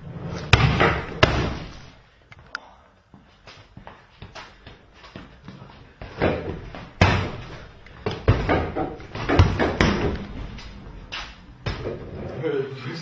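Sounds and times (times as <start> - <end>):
punches and kicks thudding on target: 0.5 - 1.8, 6.2 - 7.5, 8.1 - 10.1.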